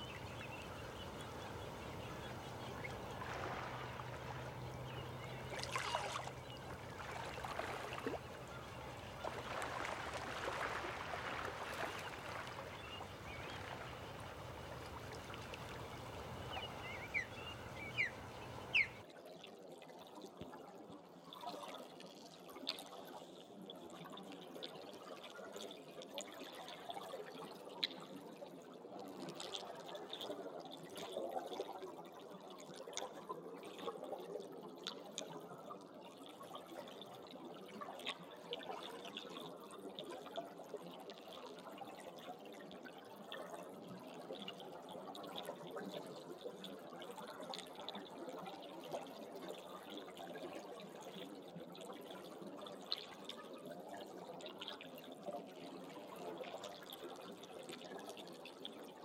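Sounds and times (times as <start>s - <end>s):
shallow water trickling: 0.0s - 19.0s
water dripping and splashing: 0.0s - 19.0s.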